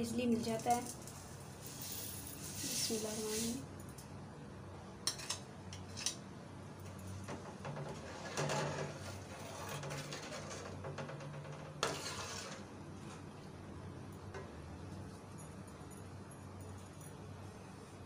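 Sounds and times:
metal spoon stirring in pot: 0:11.8 - 0:12.7.

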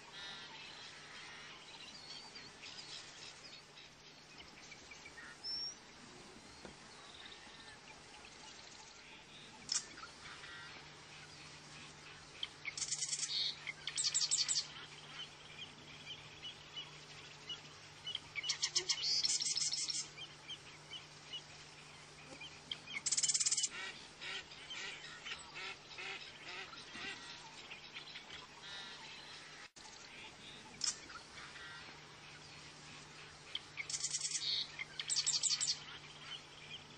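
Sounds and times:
avocets calling: 0:08.7 - 0:29.5, 0:30.1 - 0:36.9.

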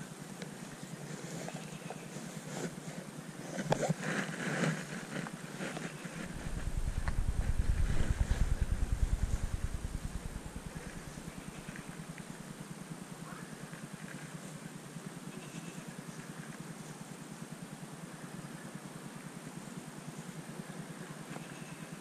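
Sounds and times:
passing vehicle engine rumble: 0:06.3 - 0:11.9.

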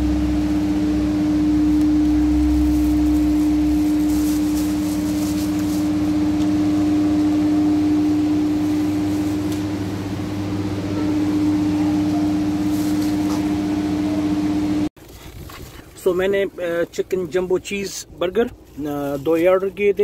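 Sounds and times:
air cooler fan motor humming: 0:00.0 - 0:20.0
plastic bag crinkling: 0:02.5 - 0:06.4.

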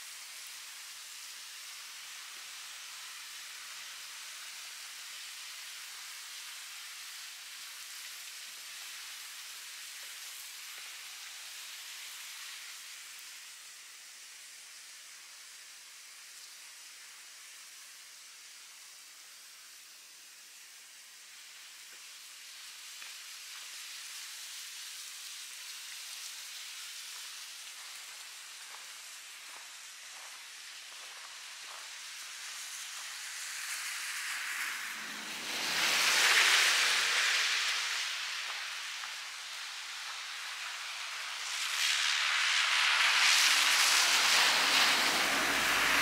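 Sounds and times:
hiss of snowy street: 0:00.0 - 0:46.0
footsteps crunching in snow: 0:27.8 - 0:32.0
vehicle passing through slush: 0:30.8 - 0:46.0.

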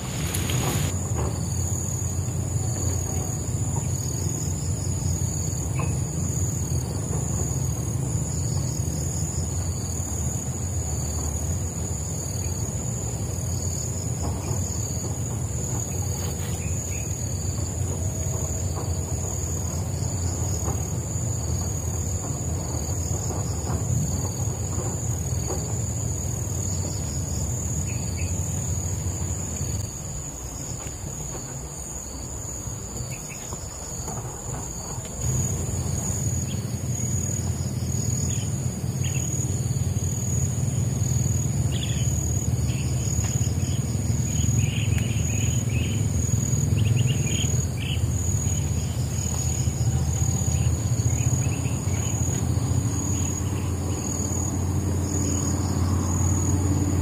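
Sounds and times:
short insect chirps: 0:00.0 - 0:06.8
high-pitched insect drone: 0:00.0 - 0:57.0.

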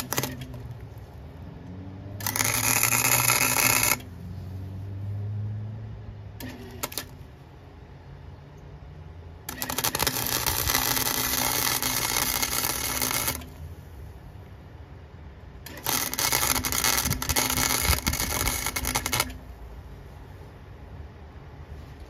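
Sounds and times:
welding arc crackling: 0:00.0 - 0:01.4, 0:02.2 - 0:04.1, 0:06.4 - 0:07.2, 0:09.4 - 0:13.6, 0:15.7 - 0:19.5
welder hum: 0:00.0 - 0:04.8, 0:09.4 - 0:14.0, 0:15.6 - 0:19.6.

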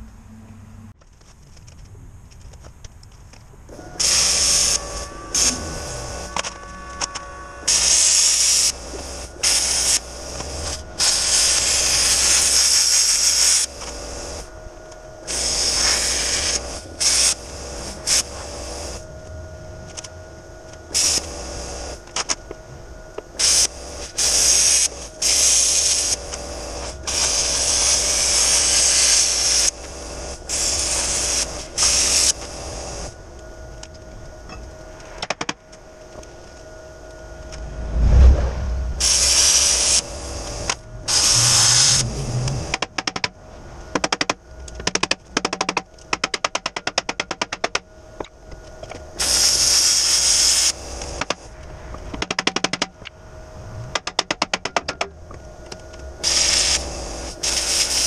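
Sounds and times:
steady low hum: 0:00.0 - 0:58.0
arc welding crackling hiss: 0:03.8 - 0:19.1, 0:19.9 - 0:33.2, 0:39.0 - 0:43.2, 0:48.8 - 0:51.6, 0:55.5 - 0:58.0.

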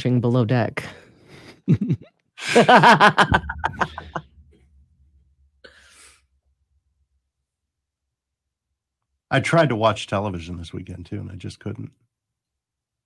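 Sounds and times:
people laughing: 0:01.7 - 0:04.2.

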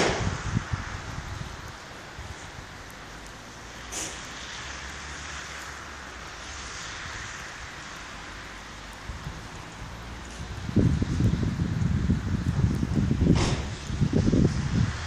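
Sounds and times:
even hiss: 0:00.0 - 0:10.2.

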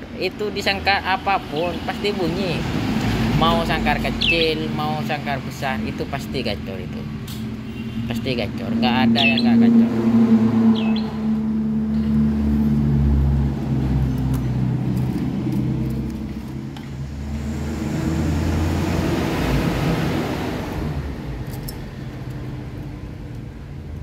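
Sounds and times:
vehicle engine passing: 0:00.6 - 0:22.8.

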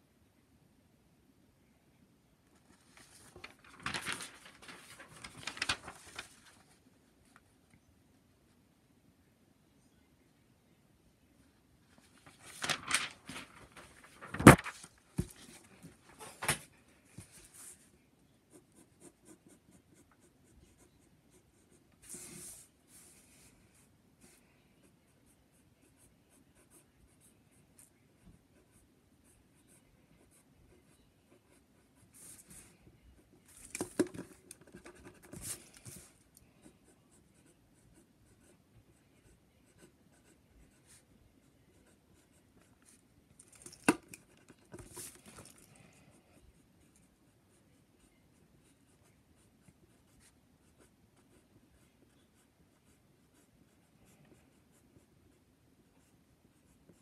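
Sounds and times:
pencil scratching on paper: 0:34.6 - 0:43.0, 0:43.8 - 0:57.0.

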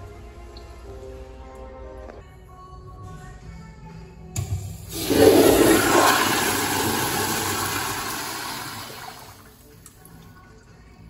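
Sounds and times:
toilet flushing: 0:04.9 - 0:09.7.

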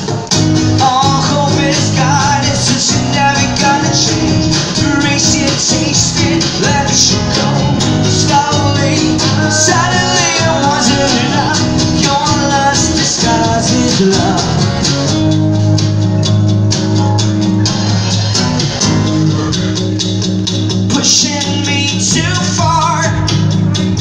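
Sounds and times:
strummed acoustic guitars: 0:00.0 - 0:24.0
man singing: 0:00.6 - 0:14.9, 0:20.8 - 0:23.5.

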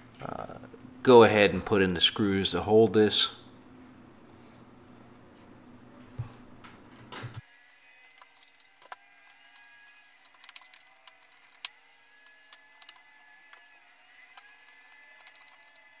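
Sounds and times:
screwdriver clicks and ticks: 0:08.1 - 0:11.8, 0:12.5 - 0:15.9.

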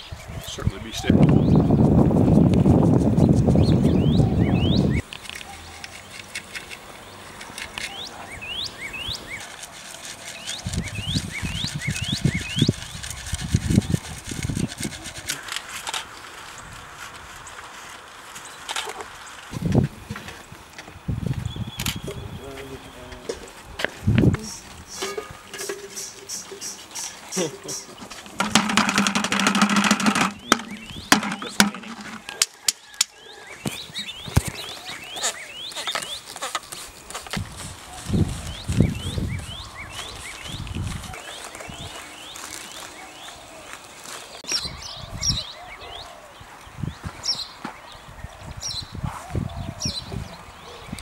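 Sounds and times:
soil scraping through metal sieve: 0:08.9 - 0:18.0, 0:24.9 - 0:32.6
gravel rattling in metal sieve: 0:24.9 - 0:33.0
sieve knocking against bucket: 0:28.4 - 0:32.6.

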